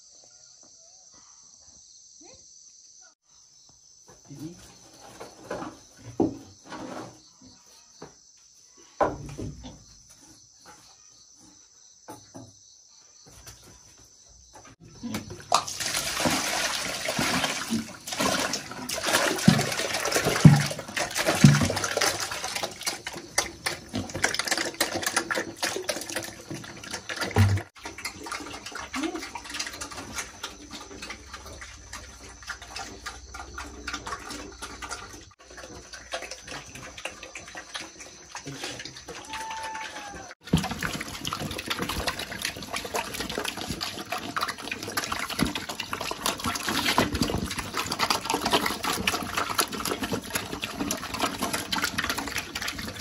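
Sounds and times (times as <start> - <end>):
piglets eating wetly: 14.8 - 53.0
wet feed splashing into metal basin: 15.0 - 53.0.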